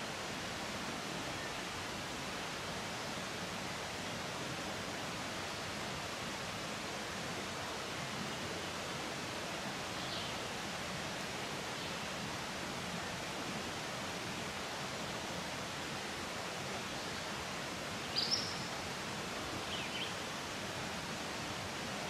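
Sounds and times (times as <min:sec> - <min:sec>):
faint high chirp: 0:18.1 - 0:18.7.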